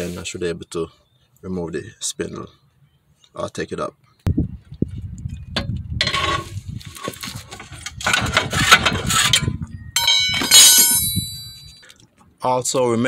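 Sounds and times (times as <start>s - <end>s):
metal scraping and knocking: 5.6s - 11.7s
ringing metallic clink: 9.9s - 11.8s.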